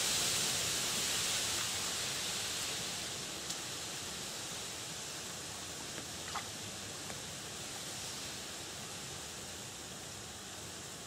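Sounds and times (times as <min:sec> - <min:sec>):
wind rustling through dry reeds: 0:00.0 - 0:11.0
faint ticks: 0:03.4 - 0:03.7.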